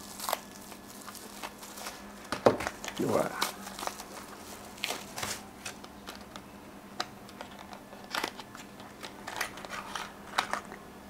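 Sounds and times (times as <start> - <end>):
packaging clicks and rustles: 0.0 - 10.8.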